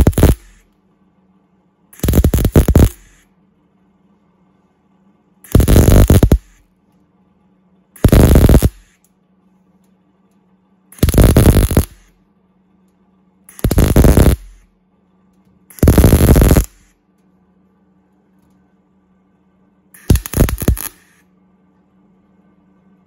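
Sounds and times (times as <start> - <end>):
welder arc bursts: 0.0 - 0.6, 2.0 - 3.2, 5.5 - 6.6, 8.0 - 9.0, 11.0 - 12.1, 13.5 - 14.6, 15.7 - 16.9, 20.0 - 21.2
faint steady hum: 0.0 - 23.0.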